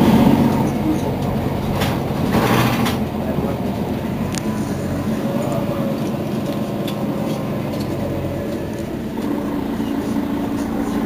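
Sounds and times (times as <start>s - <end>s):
bus engine idling: 0.0s - 11.0s.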